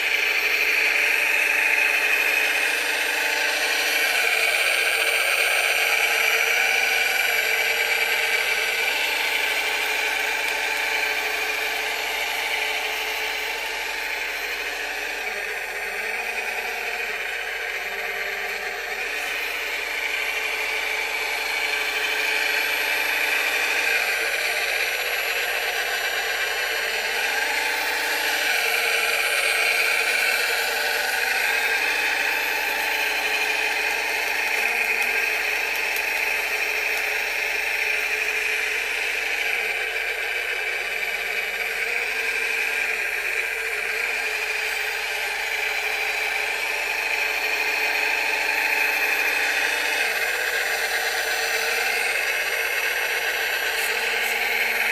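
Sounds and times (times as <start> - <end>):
toy loader electric whine: 0.0 - 54.9.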